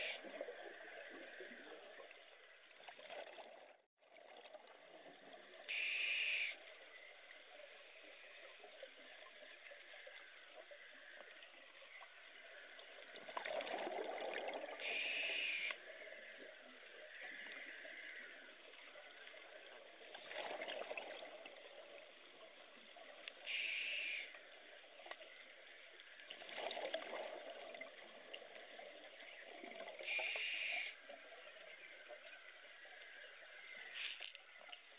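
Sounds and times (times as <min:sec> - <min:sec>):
gurgling exhaled bubbles: 0:12.8 - 0:15.0, 0:19.4 - 0:22.2, 0:26.3 - 0:30.2.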